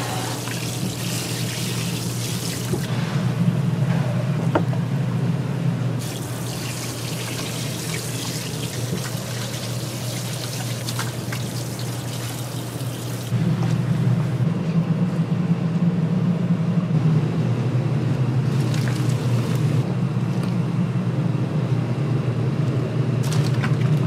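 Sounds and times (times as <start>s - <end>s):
water trickling and pouring: 0.2s - 2.8s, 6.0s - 13.4s.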